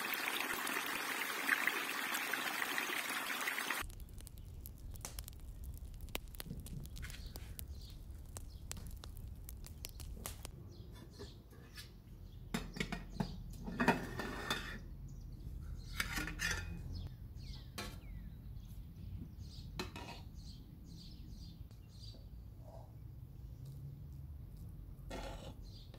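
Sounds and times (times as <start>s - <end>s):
birds chirping: 0.0s - 13.5s
metal spoon scraping a pot: 13.6s - 14.8s, 15.9s - 16.9s, 25.1s - 25.8s.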